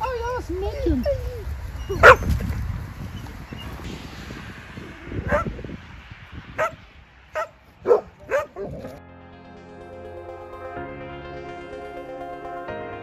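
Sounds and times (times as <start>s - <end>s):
low rumble: 1.3s - 9.1s
dog barking: 1.9s - 2.3s, 5.3s - 5.5s, 6.6s - 6.8s, 7.4s - 8.8s.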